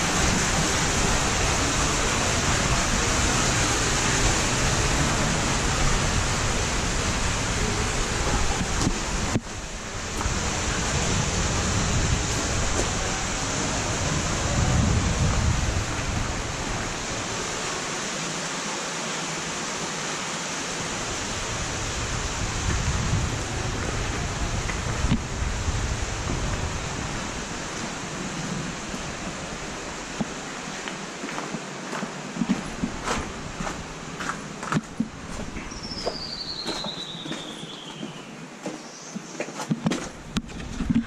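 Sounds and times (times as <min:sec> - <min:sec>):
wind buffeting microphone: 0:00.0 - 0:17.6, 0:20.9 - 0:30.4
wind rushing: 0:00.0 - 0:17.7, 0:20.8 - 0:30.2.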